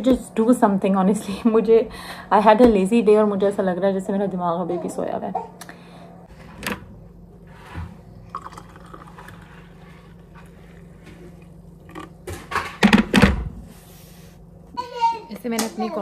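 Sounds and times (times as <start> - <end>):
water trickling into mug: 8.3 - 9.4.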